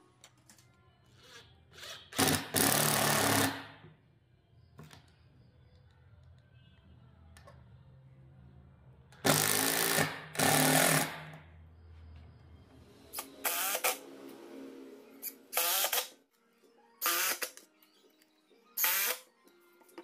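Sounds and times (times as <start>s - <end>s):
cordless driver driving screws: 15.2s - 16.1s.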